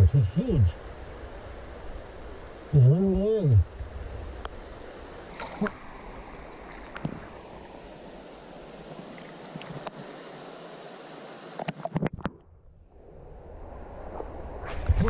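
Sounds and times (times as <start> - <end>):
small water splashes: 5.3 - 7.8
water sloshing and lapping: 5.3 - 8.0, 8.8 - 10.0.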